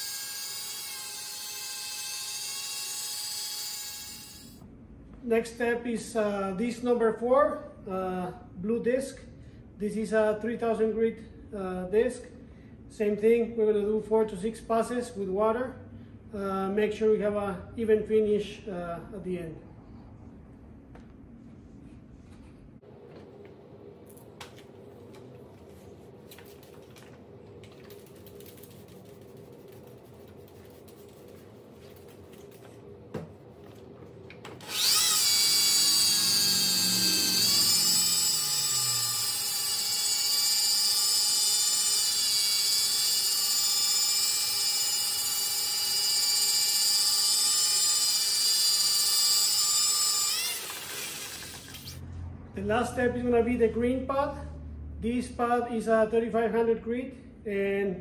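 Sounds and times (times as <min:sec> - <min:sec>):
electric drill high whine: 0:00.0 - 0:04.6, 0:34.6 - 0:52.0
steady low hum: 0:04.6 - 0:39.6.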